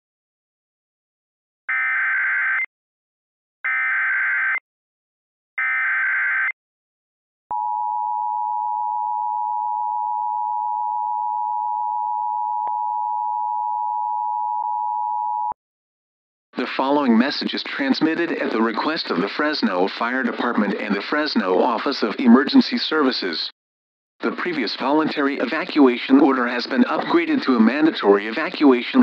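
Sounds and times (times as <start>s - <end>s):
two-tone alarm: 1.7s - 2.7s, 3.7s - 4.6s, 5.6s - 6.6s.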